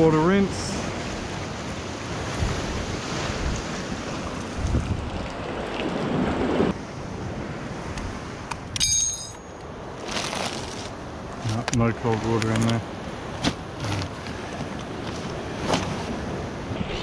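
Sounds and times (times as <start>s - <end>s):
ocean surf washing against rocks: 0.0s - 8.5s, 10.9s - 17.0s
wind buffeting the microphone: 0.8s - 8.8s
short metallic clink: 8.8s - 9.6s.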